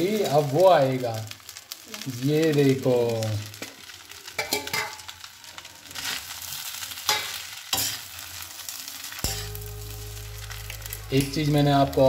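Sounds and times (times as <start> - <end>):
frying sizzle: 0.0 - 12.0
low hum: 9.3 - 12.0.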